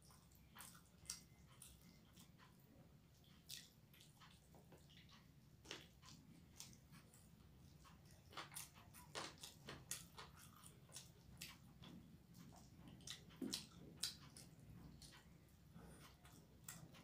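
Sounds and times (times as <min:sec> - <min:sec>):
wet chewing: 0:00.0 - 0:17.0
mouth clicks and smacks: 0:07.9 - 0:15.3.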